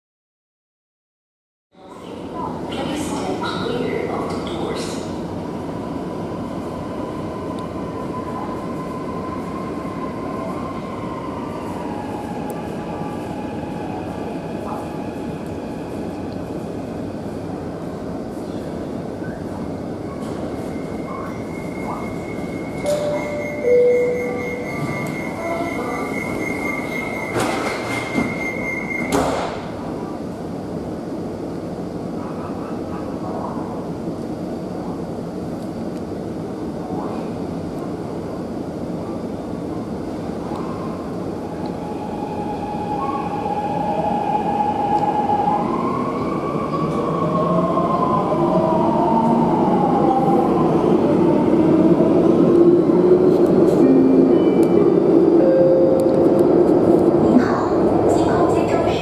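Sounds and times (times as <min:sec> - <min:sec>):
train equipment hum and hiss: 0:12.1 - 0:23.5, 0:29.2 - 0:59.0
door-closing warning tone: 0:20.1 - 0:29.6
sliding doors shutting with thump: 0:27.3 - 0:28.4.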